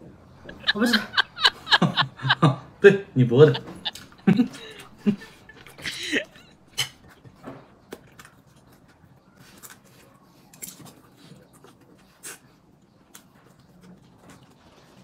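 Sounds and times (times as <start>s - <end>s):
person's voice: 2.2s - 3.9s.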